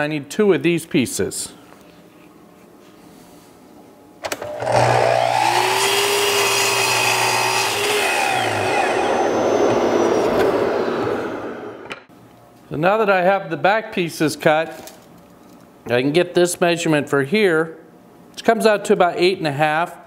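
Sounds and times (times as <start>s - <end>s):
miter saw cutting wood: 4.4s - 11.9s.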